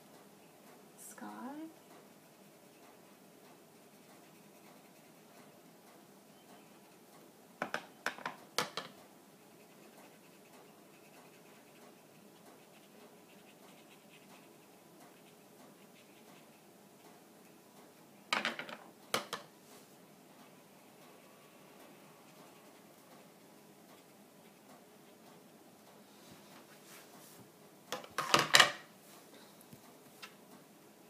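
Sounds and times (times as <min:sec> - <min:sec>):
faint scratchy brushing: 0:26.1 - 0:27.5.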